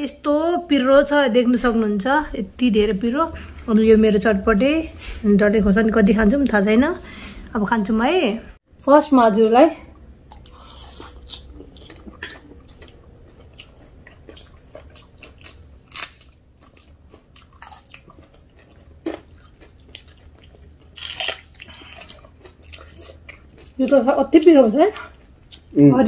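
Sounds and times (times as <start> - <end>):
chewing crisp fried snacks: 10.3 - 25.8.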